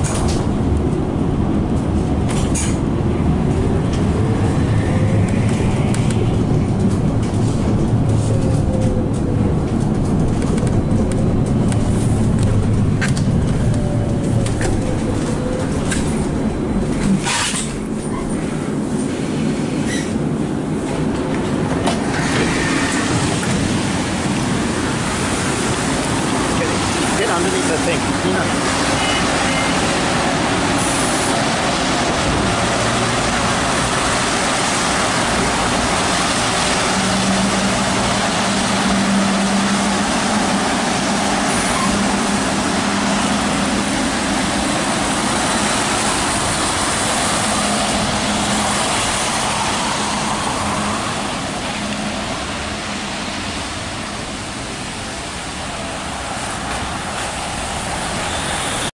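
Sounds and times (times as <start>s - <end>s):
electric bus humming: 0.0s - 58.9s
hiss from wet street: 22.1s - 58.9s.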